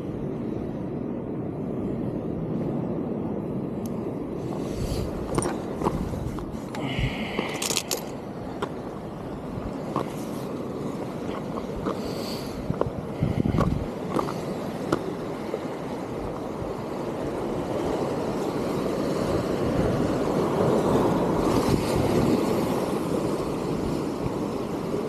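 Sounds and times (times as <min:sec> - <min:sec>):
surf washing against rocks: 0:04.0 - 0:25.0.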